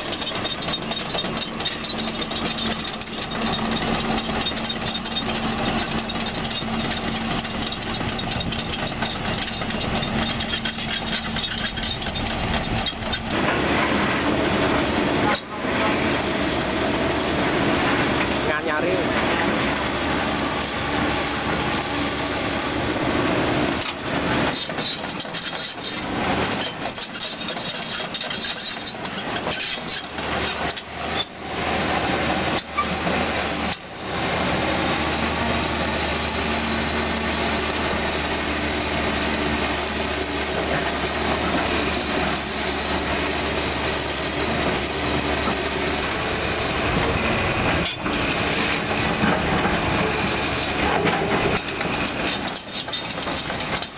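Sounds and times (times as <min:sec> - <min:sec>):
grinding stone: 0:00.0 - 0:13.7, 0:23.7 - 0:31.4, 0:34.9 - 0:53.9
steel track links clattering: 0:00.0 - 0:13.8, 0:39.1 - 0:53.9
diesel engine running: 0:00.0 - 0:53.9.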